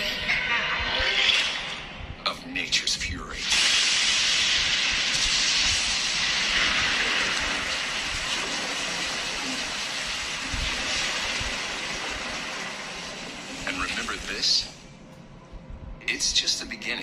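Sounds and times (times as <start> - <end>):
dense rushing hiss: 3.3 - 14.8.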